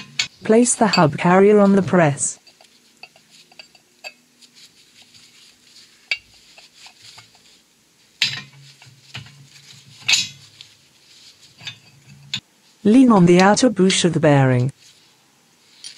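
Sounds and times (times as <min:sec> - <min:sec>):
metal clinks and clanks: 0:02.4 - 0:04.3, 0:08.2 - 0:10.7, 0:11.5 - 0:12.4, 0:15.7 - 0:15.9.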